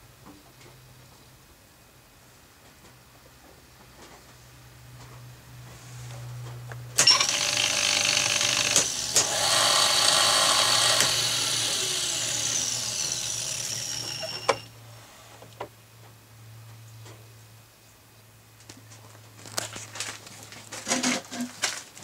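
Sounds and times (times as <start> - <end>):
drill press whining and clattering: 7.0 - 14.7.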